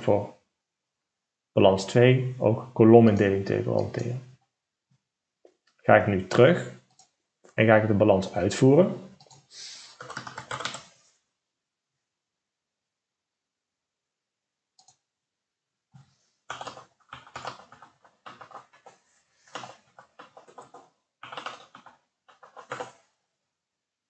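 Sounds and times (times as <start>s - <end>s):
keyboard typing: 9.1s - 11.0s, 14.8s - 15.0s, 16.5s - 23.1s.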